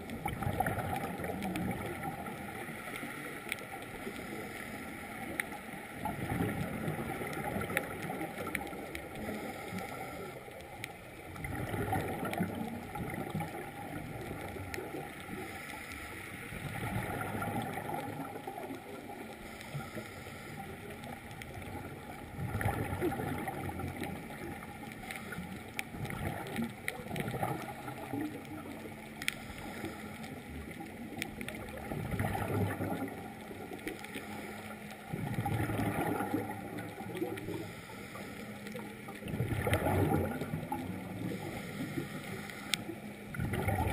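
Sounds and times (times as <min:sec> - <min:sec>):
exhaled bubbles gurgling: 0:00.0 - 0:43.9
faint steady hum: 0:00.0 - 0:43.9
steady underwater hiss: 0:00.0 - 0:43.9
diver breathing through regulator: 0:09.2 - 0:10.5, 0:15.3 - 0:16.7, 0:19.4 - 0:20.9, 0:29.3 - 0:30.5, 0:34.0 - 0:35.0, 0:37.4 - 0:38.9, 0:41.2 - 0:43.1.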